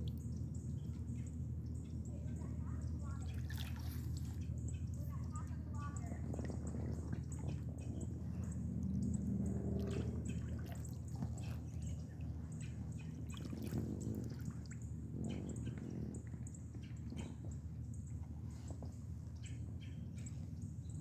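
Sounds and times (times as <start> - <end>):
paddle splashing in water: 3.2 - 4.4, 9.3 - 14.8
water dripping off paddle: 3.2 - 17.6.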